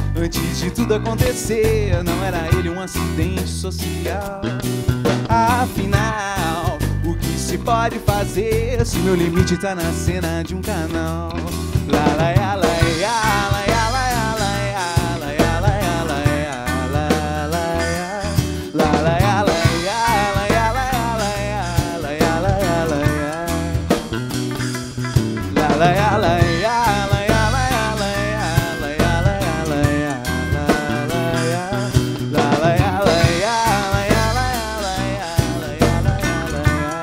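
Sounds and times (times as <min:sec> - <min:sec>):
acoustic guitar: 0:00.0 - 0:37.0
drum kit: 0:00.0 - 0:37.0
electric bass: 0:00.0 - 0:37.0
wavering melody line: 0:11.9 - 0:37.0.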